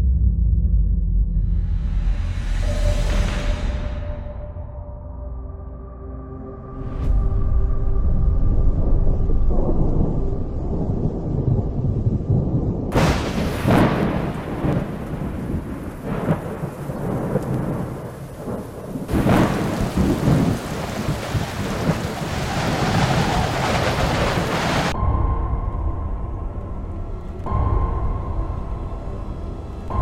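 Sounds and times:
low rumbling thunder: 7.3s - 26.8s
thunder cracks: 8.4s - 26.1s
heavy rain hissing: 13.0s - 25.0s.

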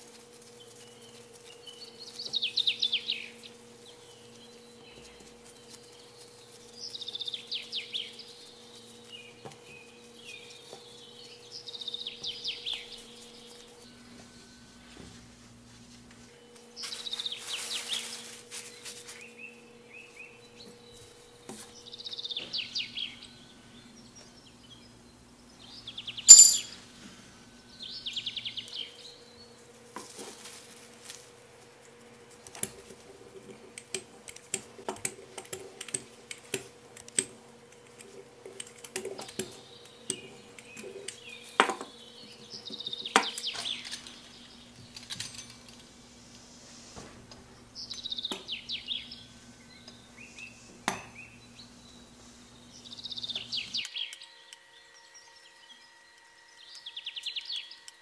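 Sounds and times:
bird chirping high trills: 19.3s - 29.6s, 48.0s - 58.0s
sharp clink: 26.3s - 26.9s.

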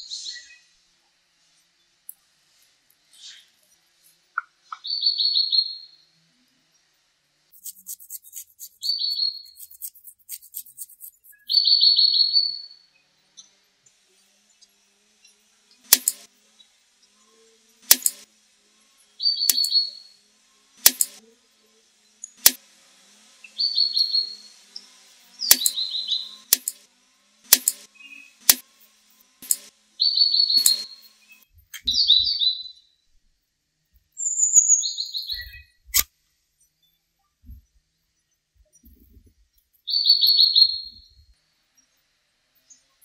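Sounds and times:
small bird chirping: 4.4s - 6.2s, 7.6s - 13.5s, 19.2s - 20.2s, 23.4s - 26.8s, 29.4s - 33.0s, 34.2s - 36.0s, 39.8s - 41.3s.

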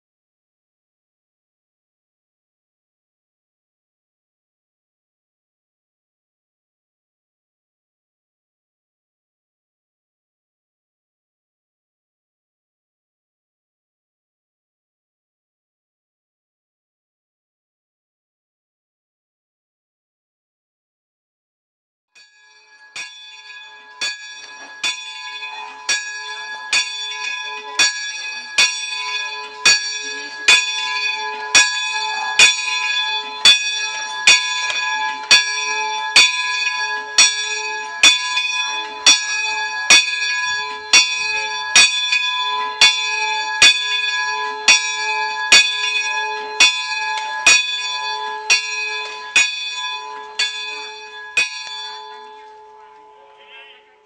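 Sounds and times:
church bell ringing: 22.2s - 54.0s.

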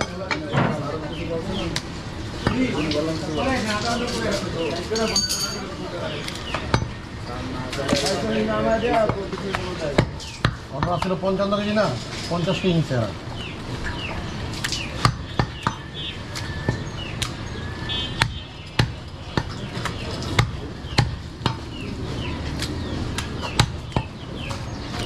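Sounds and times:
cleaver chopping meat on wood block: 6.5s - 7.0s, 9.0s - 11.2s, 14.8s - 17.4s, 18.1s - 21.8s, 22.6s - 24.7s.

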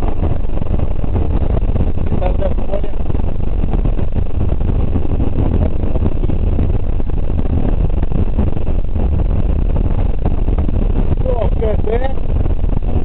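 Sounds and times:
road and gravel noise: 0.0s - 13.0s.

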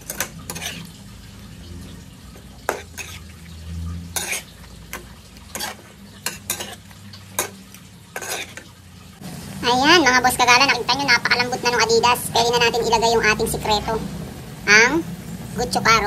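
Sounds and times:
metal spatula scraping a wok: 0.0s - 8.8s.

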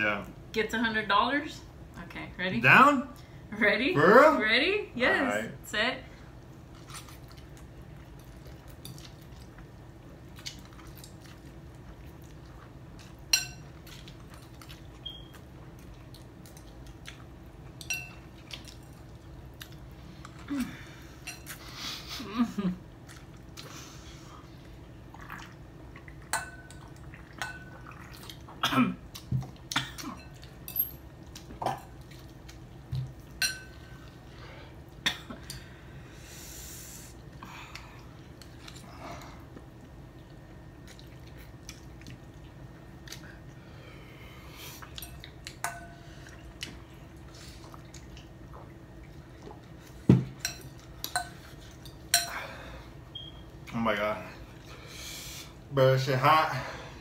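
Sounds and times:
people slurping and chewing: 23.0s - 30.6s.

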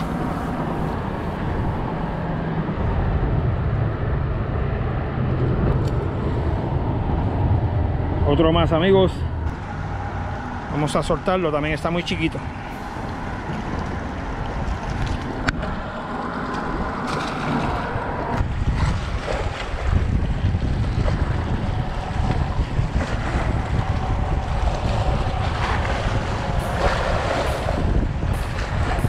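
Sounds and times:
wind buffeting microphone: 0.0s - 29.0s
waves splashing against rocks: 9.6s - 29.0s.

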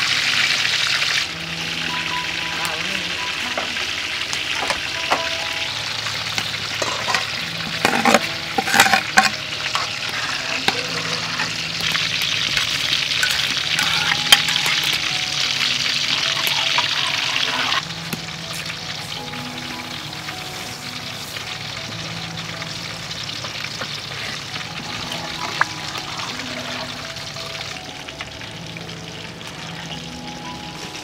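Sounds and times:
water boiling in a pot: 0.0s - 31.0s
corn kernels clattering and splashing: 6.8s - 18.7s.

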